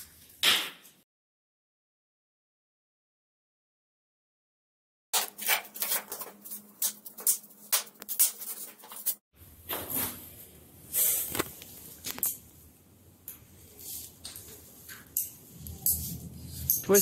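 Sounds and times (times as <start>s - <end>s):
foam packing rustling and scratching: 5.2s - 9.2s
clicks and scrapes of bike parts: 5.2s - 10.2s.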